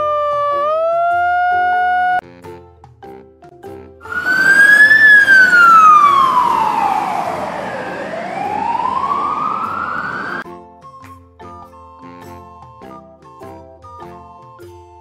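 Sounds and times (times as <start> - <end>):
fire truck siren wailing: 4.0 - 10.4.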